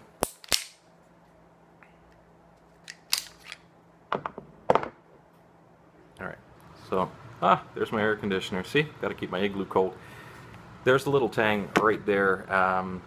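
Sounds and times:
pistol slide metal clicks: 0:00.2 - 0:00.8, 0:02.8 - 0:03.6.

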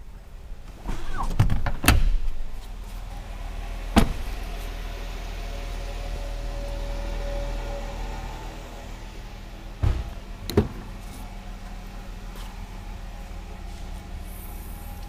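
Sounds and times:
car door slamming: 0:04.0 - 0:04.4, 0:09.8 - 0:10.9
car door latch clicks and knocks: 0:09.8 - 0:10.8.

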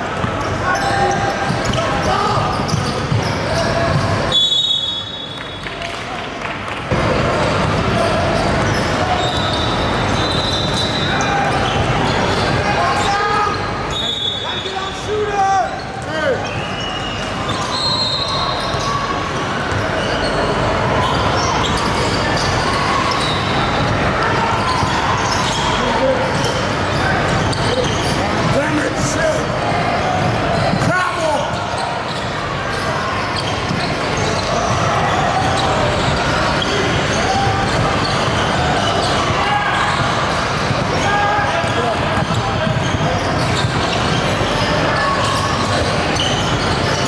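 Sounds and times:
sneakers squeaking on hardwood: 0:00.0 - 0:05.0, 0:07.5 - 0:14.7, 0:15.7 - 0:24.0, 0:24.6 - 0:28.6, 0:30.3 - 0:47.0
crowd noise echoing: 0:00.0 - 0:47.0
voices of players and spectators: 0:00.0 - 0:47.0
basketball bouncing on court: 0:00.1 - 0:04.3, 0:06.9 - 0:09.5, 0:41.6 - 0:44.7
basketball bouncing: 0:41.6 - 0:44.2.

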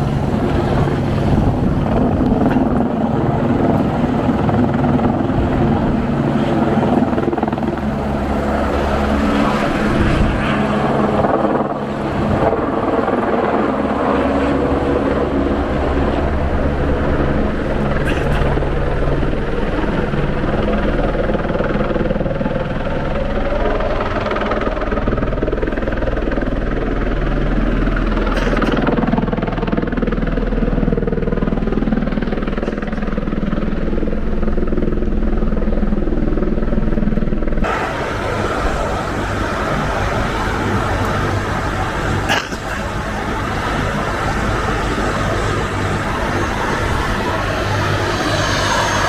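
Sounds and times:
engine drone: 0:00.0 - 0:49.0
river water rushing: 0:37.7 - 0:48.2.

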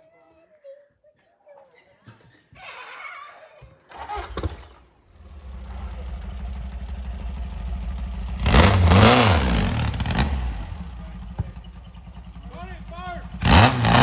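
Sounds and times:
off-road buggy engine revving: 0:03.9 - 0:14.0.

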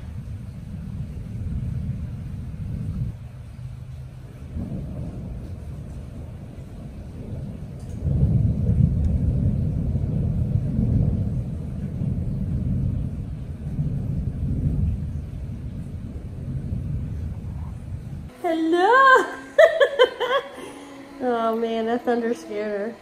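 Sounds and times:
thunder rumbling: 0:00.0 - 0:23.0.

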